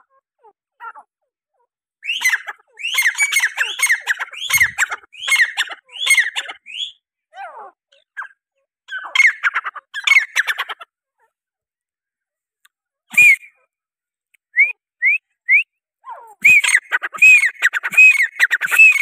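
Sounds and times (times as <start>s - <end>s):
bird calling harsh notes: 2.0s - 7.0s, 13.1s - 13.6s, 16.3s - 19.0s.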